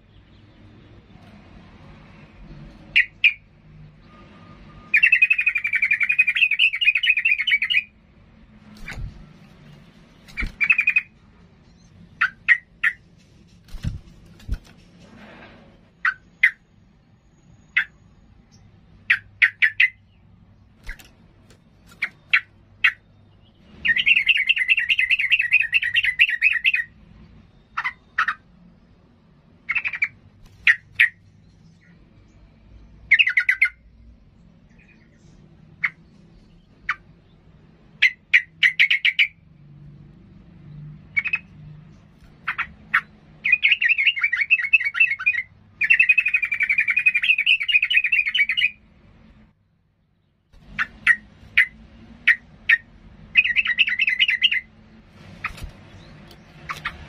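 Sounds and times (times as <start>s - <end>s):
bird singing: 2.9s - 8.0s, 8.8s - 13.1s, 16.0s - 29.0s, 29.6s - 39.5s, 40.6s - 48.9s, 49.6s - 57.0s
fast chattering bird notes: 10.2s - 11.1s, 55.3s - 57.0s.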